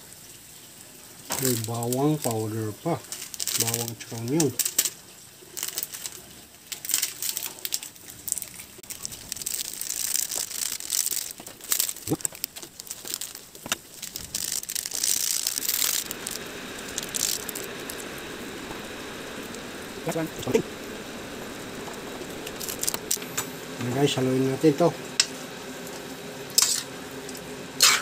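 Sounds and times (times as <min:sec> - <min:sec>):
steady hiss: 0:00.0 - 0:28.0
plastic sachets crinkling and tearing: 0:01.3 - 0:23.5
clicks and rustles: 0:03.0 - 0:20.7.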